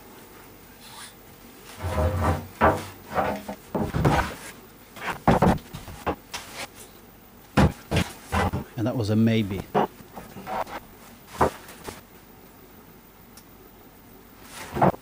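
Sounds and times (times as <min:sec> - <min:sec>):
wooden boards knocking and scraping: 0:01.8 - 0:04.4, 0:05.0 - 0:06.2, 0:07.6 - 0:08.7, 0:11.4 - 0:12.0, 0:14.7 - 0:15.0.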